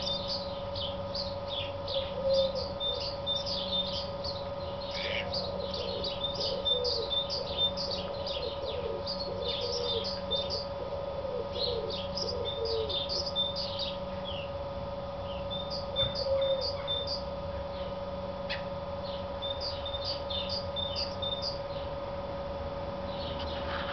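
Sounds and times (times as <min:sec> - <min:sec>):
sparrow chirping: 0:00.0 - 0:14.6, 0:15.2 - 0:21.9.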